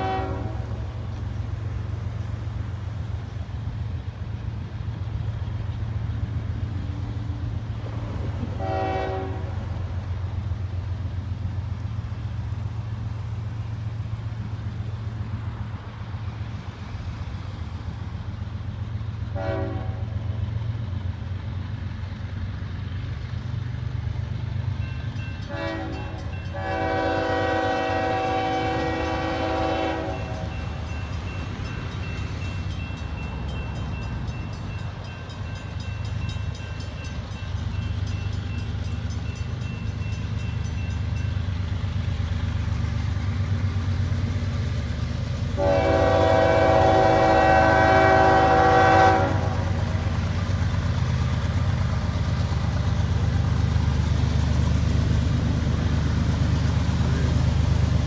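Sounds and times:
train air horn blasts: 0.0 - 0.9, 8.5 - 9.9, 19.3 - 20.2, 25.5 - 30.8, 45.6 - 49.9
low train rumble: 0.0 - 58.0.

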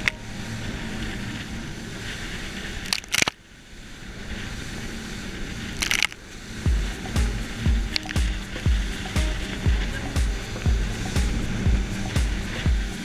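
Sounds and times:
boat engine running: 0.0 - 3.3, 4.0 - 13.0
water rushing along boat hull: 0.0 - 13.0
crackling bursts of spray: 5.8 - 13.0.

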